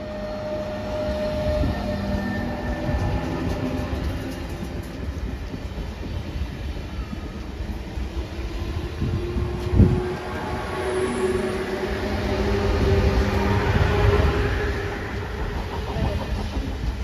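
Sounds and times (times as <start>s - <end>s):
train rumbling past: 0.0s - 17.0s.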